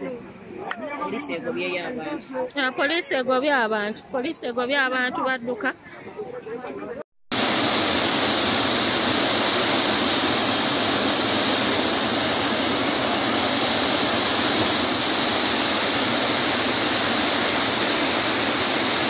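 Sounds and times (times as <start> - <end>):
river floodwater rushing: 7.3 - 19.0.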